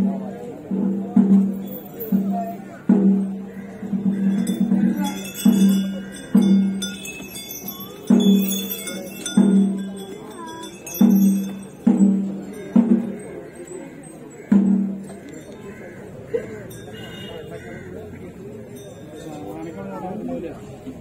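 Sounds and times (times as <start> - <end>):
small bells tinkling: 0.5 - 21.0.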